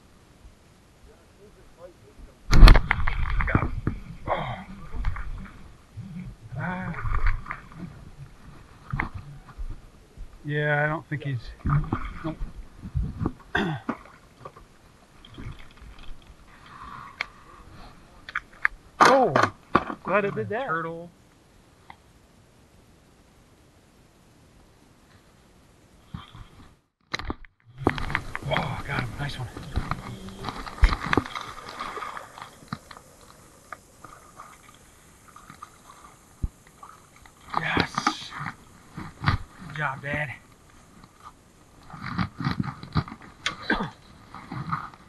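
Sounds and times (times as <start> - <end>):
person coughing: 13.5 - 13.9, 43.6 - 44.0.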